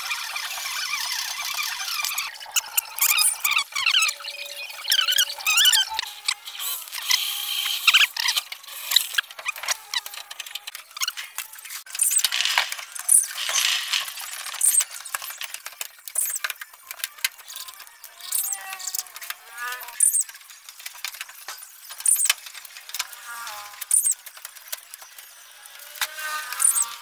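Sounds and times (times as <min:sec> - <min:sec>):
short chirping calls: 0:00.6 - 0:06.4, 0:20.0 - 0:20.3, 0:22.0 - 0:22.3, 0:23.9 - 0:24.2.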